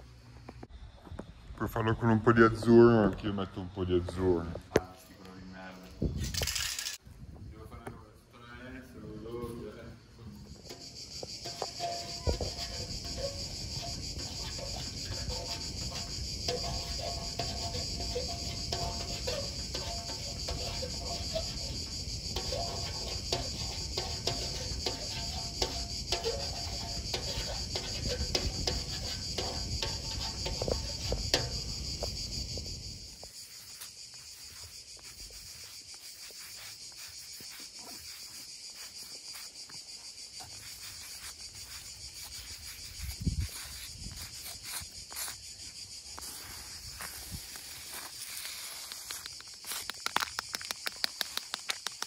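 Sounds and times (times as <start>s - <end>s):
insects chirring: 0.0s - 52.0s.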